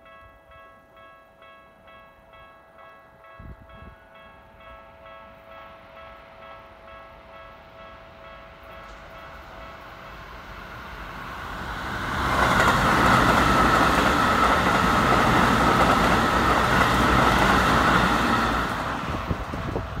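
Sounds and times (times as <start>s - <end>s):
electric train passing: 1.0s - 20.0s
wheels clicking over rail joints: 11.8s - 20.0s.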